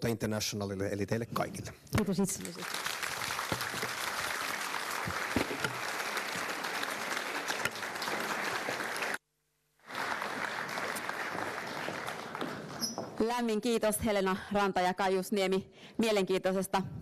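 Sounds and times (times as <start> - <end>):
audience applauding: 2.4 - 9.2, 9.8 - 13.2.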